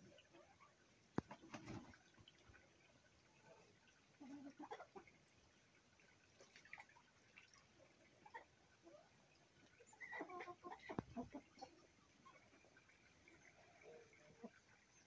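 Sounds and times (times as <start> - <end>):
ducks calling softly: 7.9 - 15.0.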